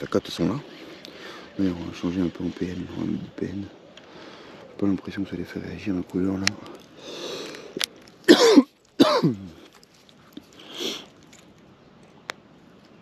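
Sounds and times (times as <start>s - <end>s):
man clearing his throat: 8.3s - 9.6s
man coughing: 8.3s - 9.6s.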